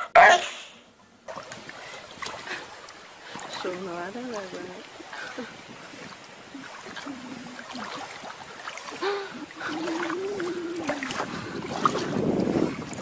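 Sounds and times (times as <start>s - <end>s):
paws splashing in shallow water: 1.3s - 13.0s
wavering held voice: 9.0s - 11.3s.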